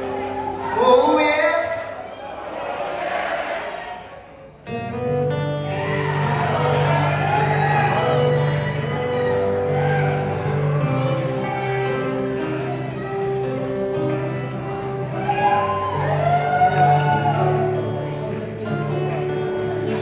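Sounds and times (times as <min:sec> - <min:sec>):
audience whooping: 0:00.0 - 0:01.2, 0:05.6 - 0:11.7, 0:15.0 - 0:18.0
amplified acoustic guitar: 0:00.0 - 0:02.5, 0:04.3 - 0:20.0.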